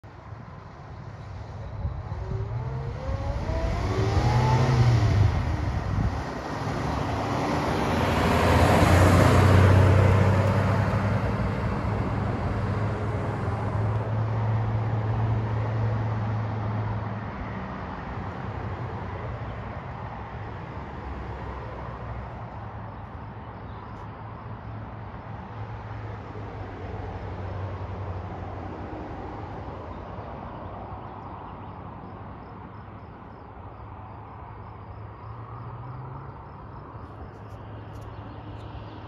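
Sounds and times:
pickup truck driving by: 1.7s - 14.0s.

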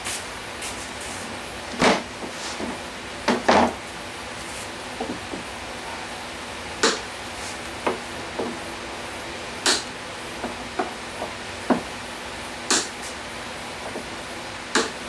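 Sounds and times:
hand tools tapping on plywood: 5.0s - 5.5s, 10.4s - 11.9s.

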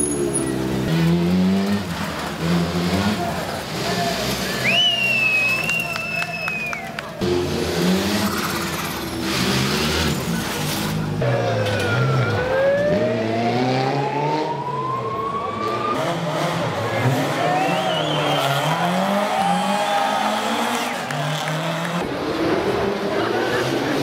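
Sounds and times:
rally car engines revving: 0.0s - 24.0s.

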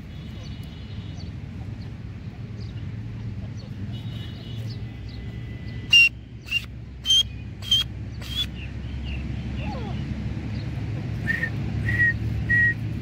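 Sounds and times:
francolin calling: 5.9s - 8.6s.

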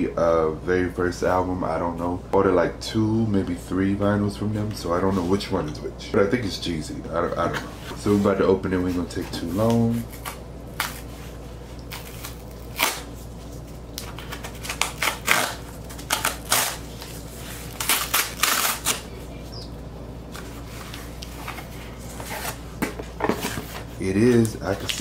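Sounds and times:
cardboard ripping and scraping: 14.2s - 19.1s, 21.4s - 22.6s, 23.3s - 25.0s.

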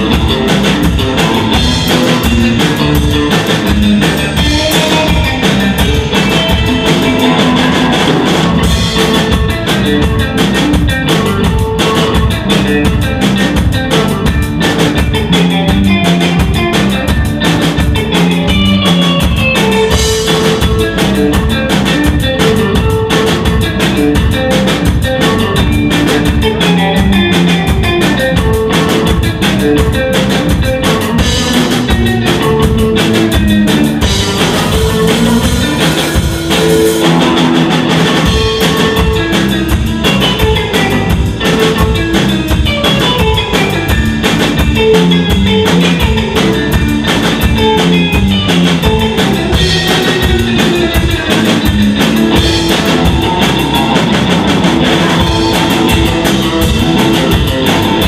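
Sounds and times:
bass guitar: 0.0s - 58.0s
drum kit beat: 0.0s - 58.0s
electric guitar: 0.0s - 58.0s.

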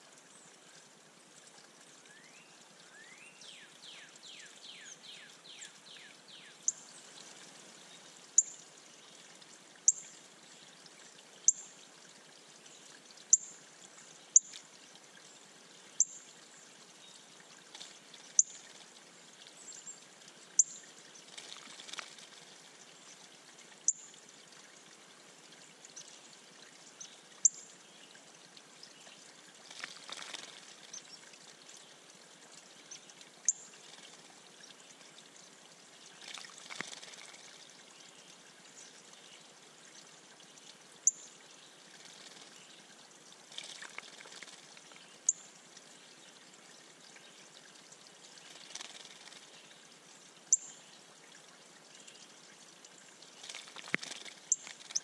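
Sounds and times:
water trickling: 0.0s - 55.0s
bird splashing in water: 21.2s - 22.6s, 29.6s - 31.0s, 36.2s - 37.6s, 41.9s - 42.6s, 43.5s - 45.0s, 48.4s - 49.5s, 53.4s - 55.0s.

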